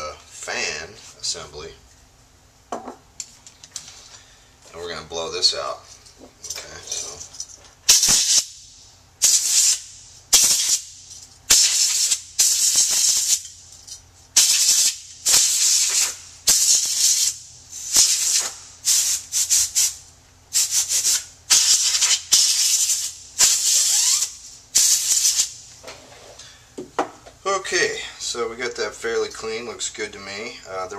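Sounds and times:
compressed air hissing bursts: 7.9s - 13.4s, 14.4s - 25.7s.

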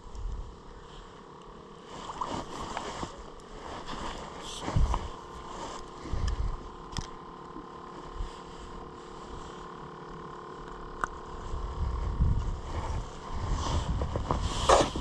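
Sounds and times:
faint steady hum: 0.0s - 15.0s
wind buffeting microphone: 11.4s - 15.0s.

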